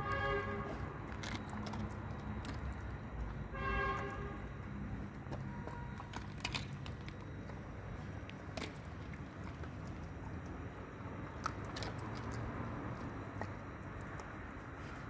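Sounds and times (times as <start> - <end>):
horn toots: 0.0 - 1.0, 3.5 - 4.5
dog chewing bones: 0.0 - 15.0
low street hum: 0.0 - 15.0.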